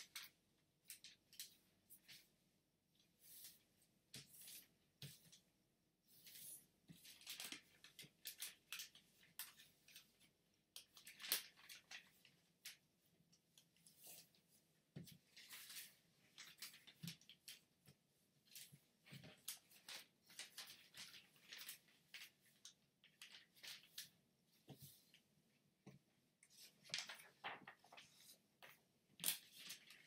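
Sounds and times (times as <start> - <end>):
paper rustling and crinkling: 6.1 - 12.8, 13.6 - 17.8, 18.4 - 25.2, 26.4 - 30.0
paper crackle: 6.2 - 10.1, 10.8 - 12.8, 15.3 - 17.6, 18.4 - 24.1, 26.6 - 30.0.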